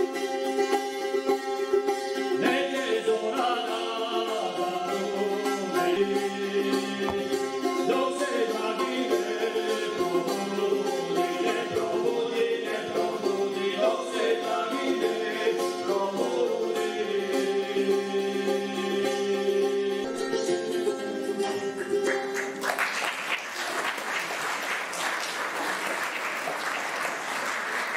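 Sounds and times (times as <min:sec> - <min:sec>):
folk wind instrument melody: 0:00.0 - 0:22.3.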